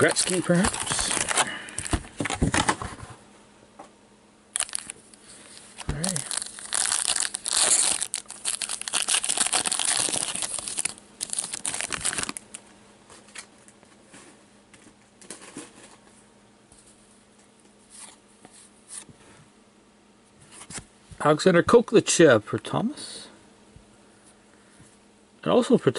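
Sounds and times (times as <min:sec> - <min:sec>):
wrapper tearing and crinkling: 0:00.0 - 0:01.9, 0:04.5 - 0:12.5.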